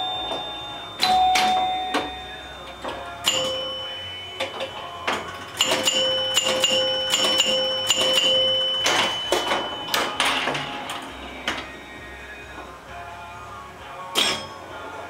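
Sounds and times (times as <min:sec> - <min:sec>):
pinball chime bells ringing: 0:00.0 - 0:11.7
pinball mechanical clicks: 0:00.0 - 0:11.8.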